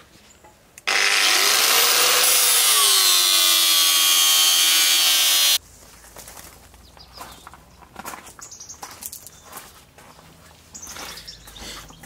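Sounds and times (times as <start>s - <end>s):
angle grinder grinding metal: 0.9s - 5.6s.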